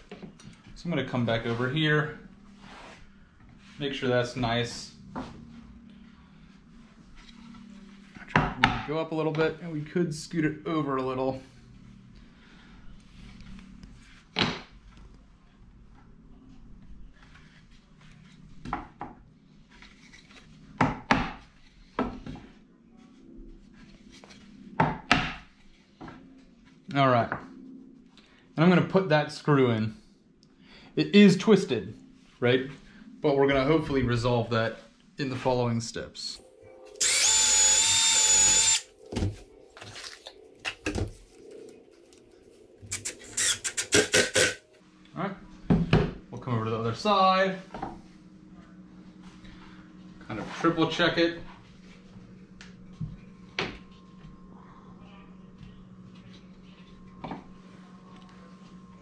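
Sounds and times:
cordless drill driving a screw: 37.0s - 38.9s, 43.0s - 44.6s.

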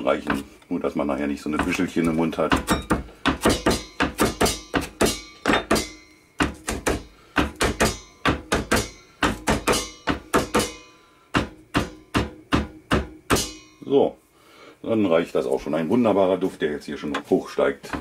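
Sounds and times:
knife chopping on plastic board: 1.5s - 10.8s.

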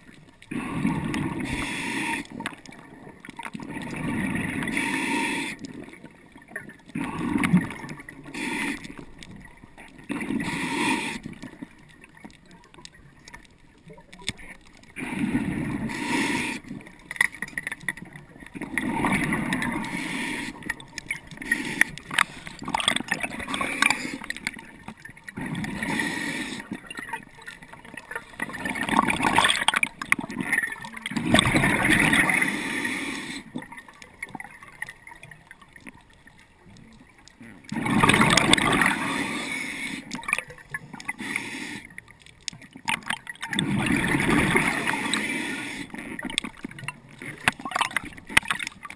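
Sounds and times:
bubbles gurgling: 0.0s - 41.3s, 41.9s - 48.9s
diver breathing through regulator: 0.5s - 2.5s, 3.9s - 5.8s, 8.2s - 9.2s, 10.1s - 11.6s, 15.0s - 17.0s, 19.0s - 24.6s, 25.4s - 26.9s, 31.3s - 33.6s, 38.0s - 40.3s, 40.9s - 42.0s, 43.6s - 46.3s.

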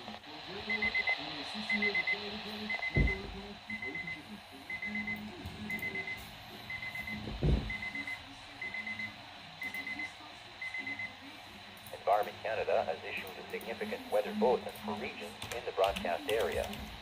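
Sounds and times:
weather radio alarm beeps: 0.6s - 11.2s
dull thump: 7.3s - 7.8s.

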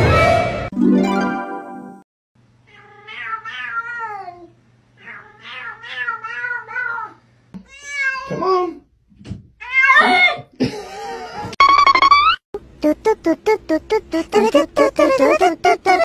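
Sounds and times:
cats meowing: 2.7s - 8.7s.

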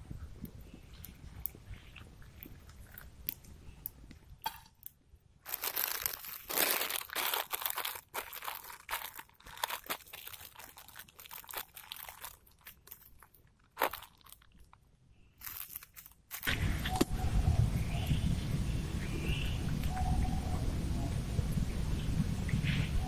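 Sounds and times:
paper-foil lid crinkling: 5.4s - 14.6s, 15.4s - 17.0s.

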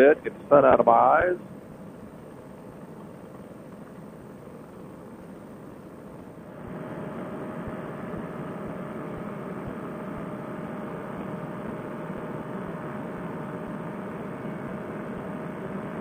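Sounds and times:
paramotor engine droning: 0.0s - 16.0s.

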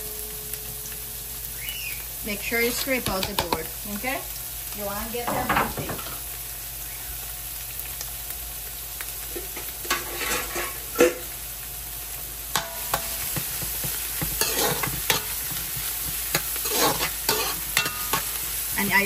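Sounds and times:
vegetables sizzling in hot oil: 0.0s - 19.0s
spoon knocking against pan: 3.0s - 3.7s, 12.6s - 18.3s
metal spoon scraping and stirring: 9.8s - 11.2s, 12.6s - 18.4s.

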